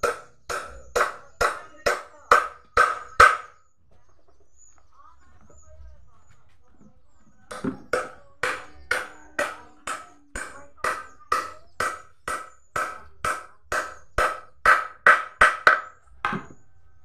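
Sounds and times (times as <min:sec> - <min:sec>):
hammer striking wood: 0:00.0 - 0:03.6, 0:07.5 - 0:16.6.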